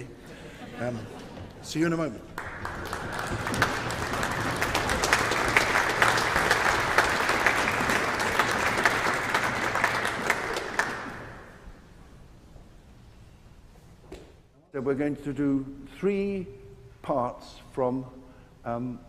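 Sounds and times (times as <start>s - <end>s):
audience applauding: 2.0s - 11.6s.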